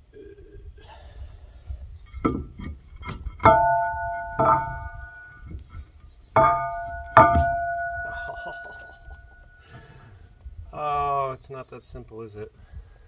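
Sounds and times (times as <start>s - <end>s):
dull knocks on metal: 2.2s - 5.6s, 6.4s - 9.2s
metal sprocket ringing: 3.4s - 5.5s, 6.4s - 9.5s.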